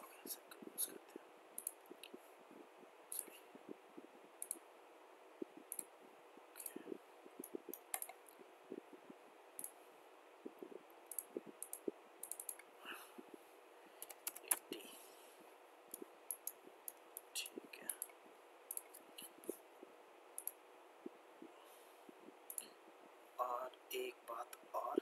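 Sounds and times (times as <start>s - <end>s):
faint computer mouse clicks: 1.6s - 2.2s, 4.4s - 4.6s, 6.6s - 8.4s, 10.4s - 12.7s, 14.0s - 14.7s, 15.9s - 19.6s, 20.4s - 20.6s, 22.5s - 22.7s.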